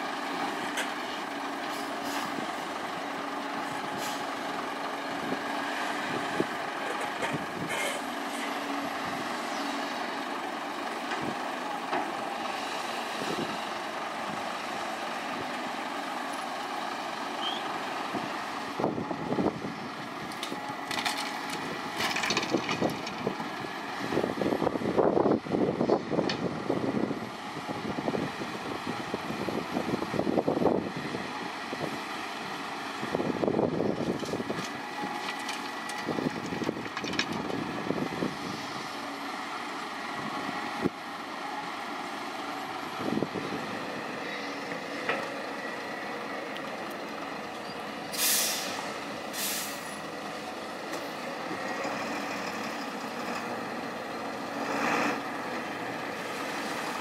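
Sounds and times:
diesel engines of heavy machinery: 0:00.0 - 0:57.0
truck air-brake hisses: 0:48.1 - 0:50.0.

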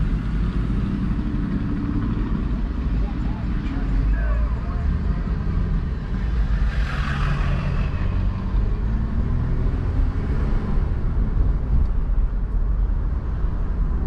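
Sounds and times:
car road and engine rumble: 0:00.0 - 0:14.0.

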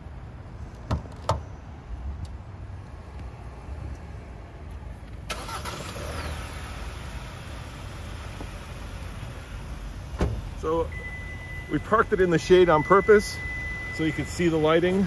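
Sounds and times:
car engine starting and idling: 0:05.0 - 0:15.0.

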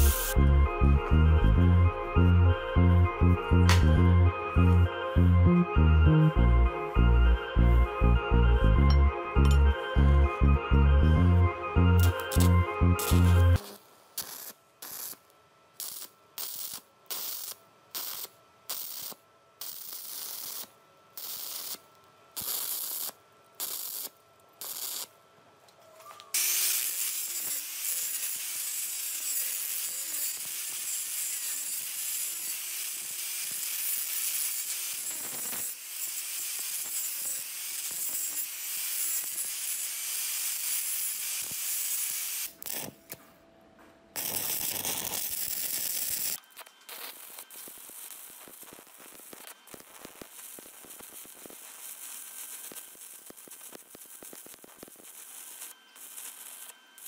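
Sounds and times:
angle grinder grinding steel: 0:00.0 - 0:00.4, 0:11.9 - 0:13.7, 0:26.4 - 0:42.8
welding arc crackling: 0:00.0 - 0:00.4, 0:12.0 - 0:25.2, 0:26.4 - 0:43.1, 0:44.1 - 0:57.0.

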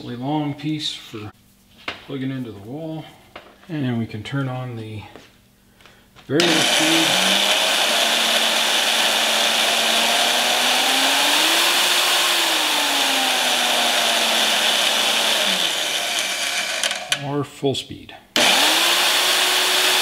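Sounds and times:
bandsaw motor whining: 0:06.4 - 0:17.2, 0:18.4 - 0:20.0.

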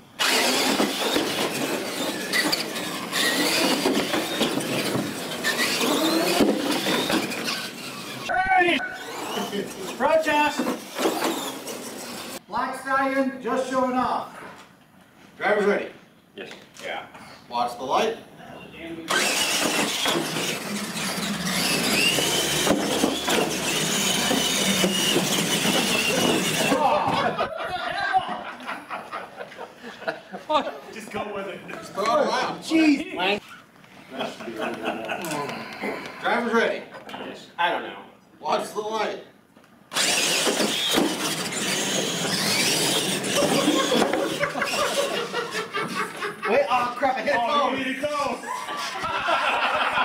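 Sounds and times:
electric motors whining: 0:00.0 - 0:12.4, 0:19.1 - 0:27.4, 0:39.9 - 0:46.2
toy truck clattering over: 0:00.2 - 0:08.2, 0:10.6 - 0:12.4, 0:19.1 - 0:26.8, 0:39.9 - 0:45.5
tyres on hard floor: 0:00.6 - 0:07.7, 0:19.3 - 0:27.4.

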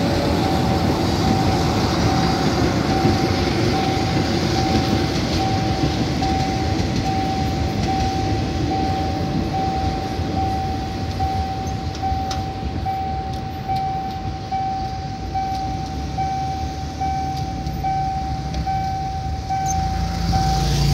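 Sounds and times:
level crossing warning beeps: 0:00.0 - 0:20.9
train rumble: 0:00.0 - 0:20.9.

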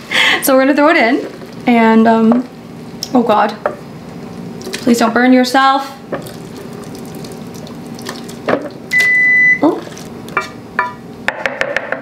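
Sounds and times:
food sloshing out of a pan: 0:06.2 - 0:08.8
high beep: 0:08.9 - 0:09.6.

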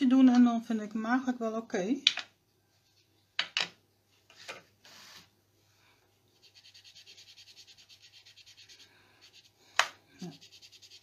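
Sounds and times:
rubbing against paper: 0:06.4 - 0:09.6, 0:10.2 - 0:11.0.

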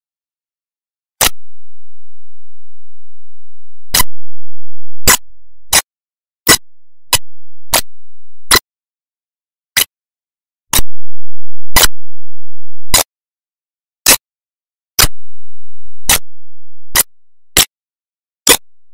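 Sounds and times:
sharp digital clicks: 0:01.2 - 0:02.2, 0:10.7 - 0:12.0, 0:15.0 - 0:17.7.

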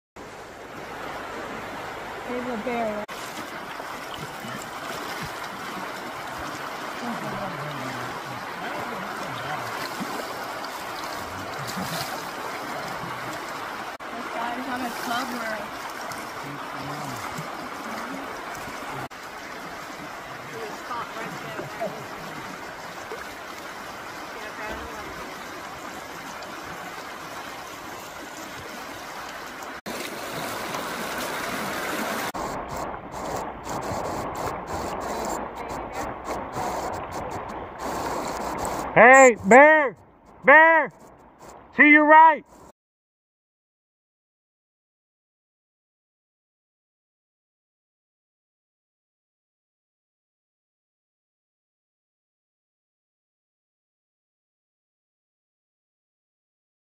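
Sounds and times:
river rushing over shallows: 0:00.2 - 0:42.7.

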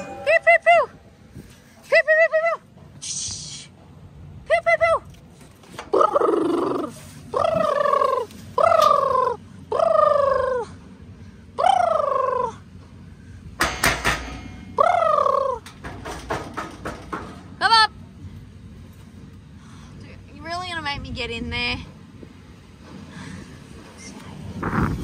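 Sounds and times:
knocks and rattling: 0:13.6 - 0:14.7, 0:15.6 - 0:17.7.

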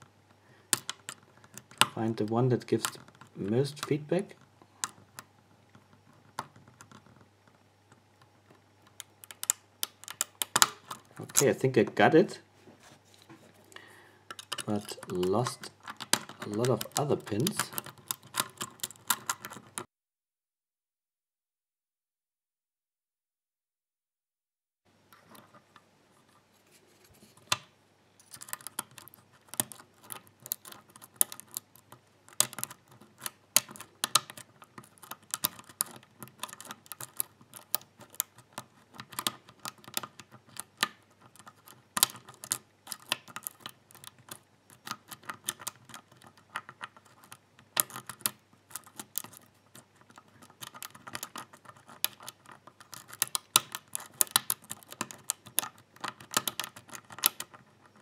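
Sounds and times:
lock pick clicking and scraping: 0:00.7 - 0:02.0, 0:08.8 - 0:11.6, 0:14.3 - 0:19.9, 0:28.2 - 0:58.0.

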